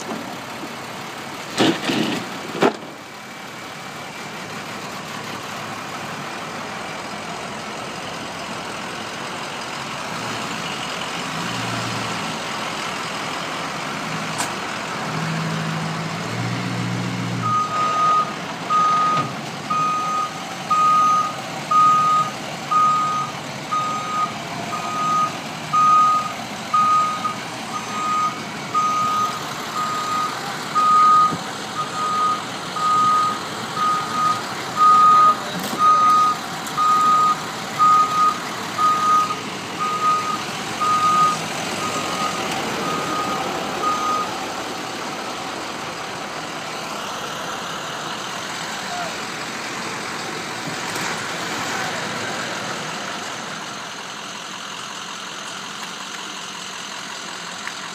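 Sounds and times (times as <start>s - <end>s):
truck reversing alarm beeping: 15.3s - 44.9s.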